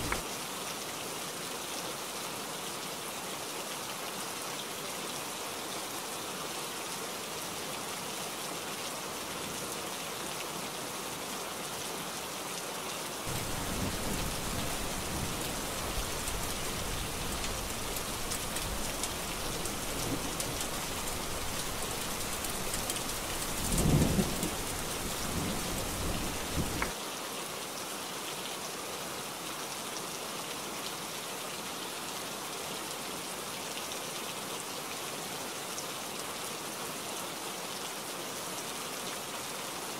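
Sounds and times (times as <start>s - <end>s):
heavy rain: 0.0s - 39.9s
thunder rumbling and cracking: 13.3s - 26.9s.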